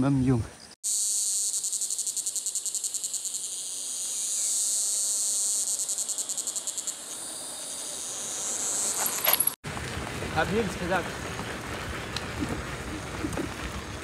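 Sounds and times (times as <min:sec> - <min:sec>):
insect chorus buzzing: 0:00.2 - 0:09.6
bicycle riding past: 0:05.5 - 0:14.0
bicycle clicks and rattles: 0:08.9 - 0:14.0.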